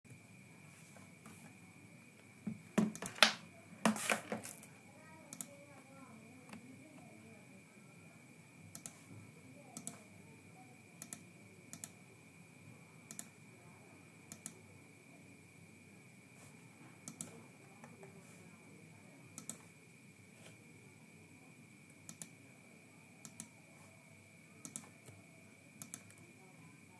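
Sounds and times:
faint high-pitched whine: 0:00.1 - 0:26.9
computer mouse clicks: 0:05.3 - 0:05.6, 0:08.7 - 0:09.1, 0:09.8 - 0:10.0, 0:11.0 - 0:12.0, 0:13.1 - 0:13.3, 0:14.3 - 0:14.6, 0:17.0 - 0:18.0, 0:19.4 - 0:19.7, 0:22.1 - 0:22.4, 0:23.2 - 0:23.5, 0:24.6 - 0:25.2, 0:25.8 - 0:26.2.

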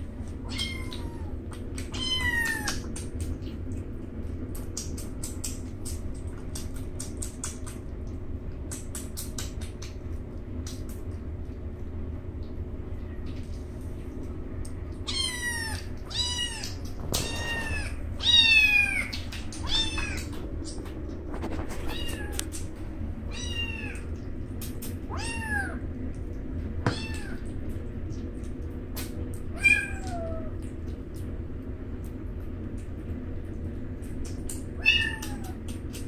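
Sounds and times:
kitten meowing: 0:00.4 - 0:02.9, 0:15.1 - 0:20.4, 0:21.8 - 0:22.6, 0:23.3 - 0:24.1, 0:26.9 - 0:27.4, 0:34.8 - 0:35.6.

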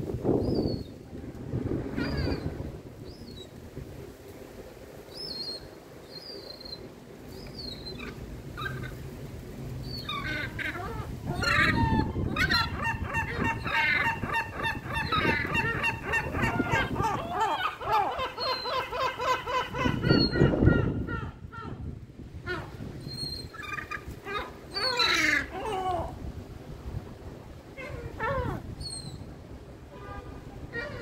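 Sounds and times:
gulls calling: 0:01.8 - 0:03.5, 0:09.8 - 0:21.9, 0:22.5 - 0:26.2, 0:27.7 - 0:31.0.

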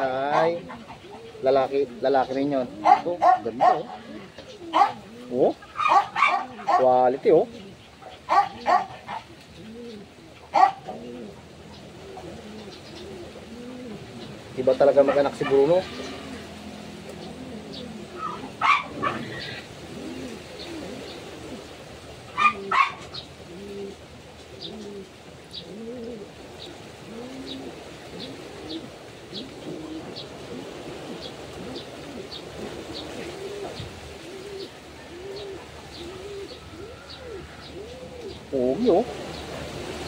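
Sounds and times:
doves cooing: 0:00.0 - 0:40.0.

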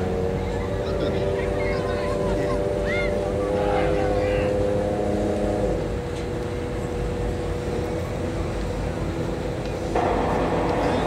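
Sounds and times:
diesel engines rumbling: 0:00.0 - 0:11.0
faint steady tones: 0:00.0 - 0:11.0.

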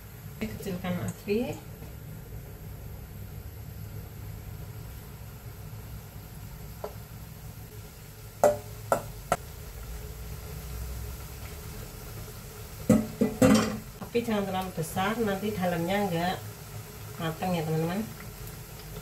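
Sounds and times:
steel bowl knocking on pan: 0:08.4 - 0:09.4, 0:12.9 - 0:13.8.

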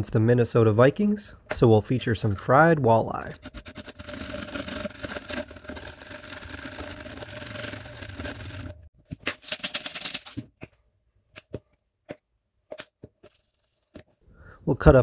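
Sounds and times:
wire whisk beating eggs: 0:03.2 - 0:08.9.

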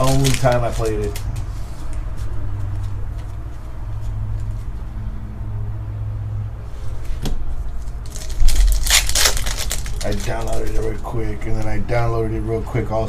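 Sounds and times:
trading cards being handled: 0:00.0 - 0:04.8, 0:07.0 - 0:11.8.

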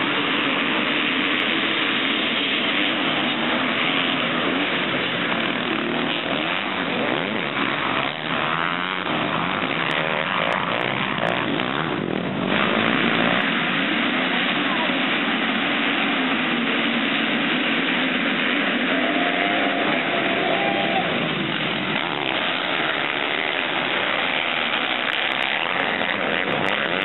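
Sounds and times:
motocross bikes revving: 0:00.0 - 0:27.0.

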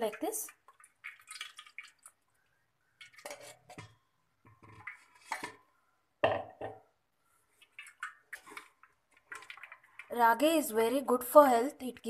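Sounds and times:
metal utensils scraping a strainer: 0:03.2 - 0:03.9.

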